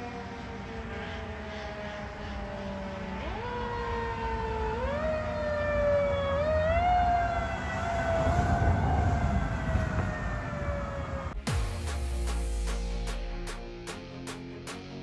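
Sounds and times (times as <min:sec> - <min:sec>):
fire truck siren: 0:00.0 - 0:11.4.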